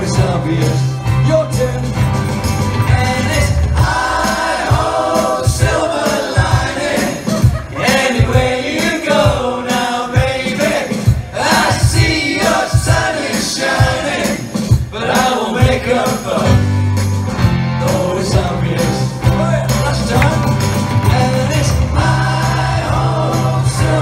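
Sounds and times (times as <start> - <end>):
electric bass: 0.0 - 4.3, 16.5 - 24.0
keyboard: 0.0 - 24.0
voices singing along: 2.8 - 16.7, 17.7 - 24.0.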